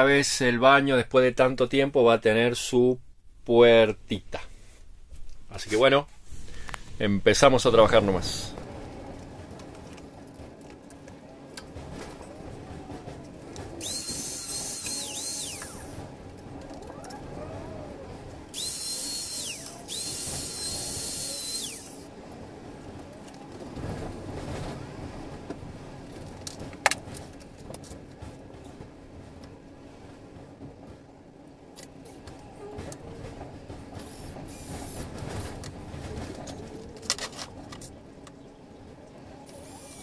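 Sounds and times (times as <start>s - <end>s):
cordless drill whining: 13.8s - 16.0s, 18.5s - 22.1s.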